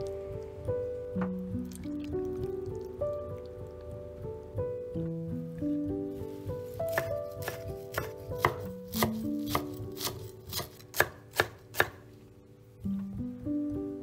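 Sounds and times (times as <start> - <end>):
knife chopping on wooden board: 6.9 - 12.0.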